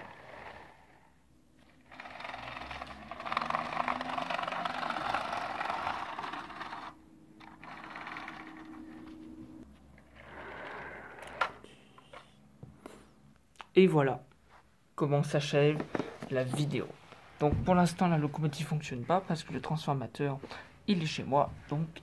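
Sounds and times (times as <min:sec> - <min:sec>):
toy train wheels clattering on rails: 0:01.9 - 0:09.0.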